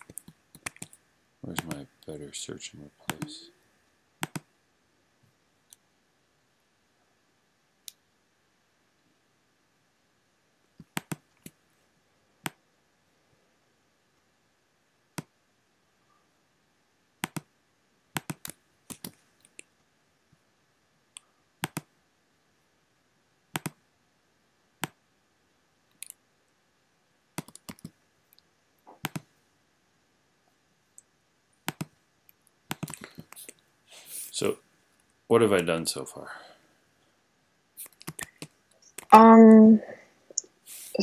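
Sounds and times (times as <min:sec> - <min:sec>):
computer mouse and keyboard clicks: 0:00.0 - 0:01.8, 0:04.2 - 0:04.5, 0:10.8 - 0:11.6, 0:17.2 - 0:17.5, 0:18.1 - 0:19.7, 0:21.6 - 0:21.9, 0:23.6 - 0:23.8, 0:27.4 - 0:28.0, 0:28.9 - 0:29.3, 0:31.6 - 0:33.5, 0:37.8 - 0:39.1.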